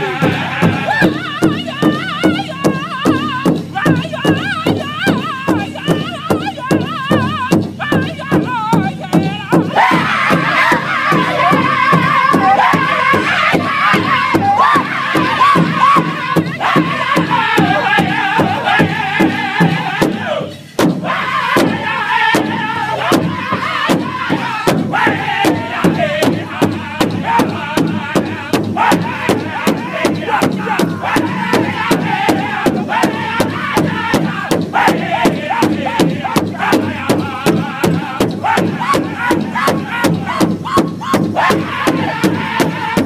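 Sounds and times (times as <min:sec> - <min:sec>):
group singing in high voices: 0:00.0 - 0:43.0
large drum beating: 0:00.0 - 0:43.0.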